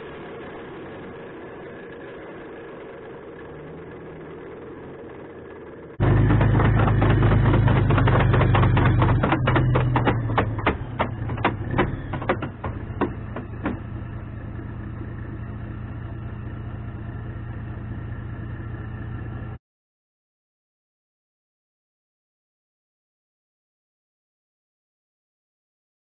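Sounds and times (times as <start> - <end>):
diesel engine running: 0.0 - 19.6
steel tracks clattering on concrete: 6.0 - 13.9.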